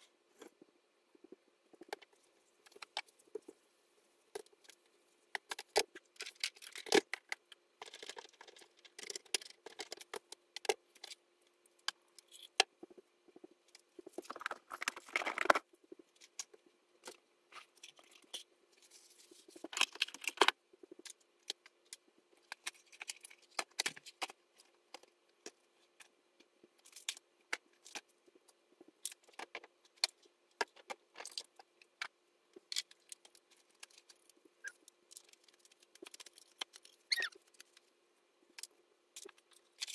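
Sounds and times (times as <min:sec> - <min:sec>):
faint steady hum: 0:00.0 - 0:39.9
objects clicking and rattling: 0:04.3 - 0:11.2, 0:11.8 - 0:18.5, 0:19.4 - 0:26.1, 0:28.9 - 0:37.9.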